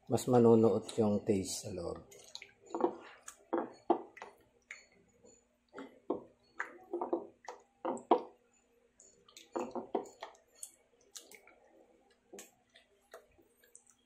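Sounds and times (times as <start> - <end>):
chicken squelching in wet marinade: 2.0 - 4.9.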